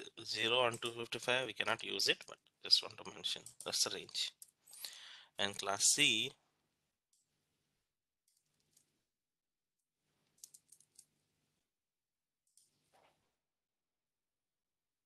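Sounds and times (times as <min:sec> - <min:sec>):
keyboard and mouse clicks: 0:03.4 - 0:04.9, 0:10.2 - 0:11.1, 0:12.5 - 0:13.1.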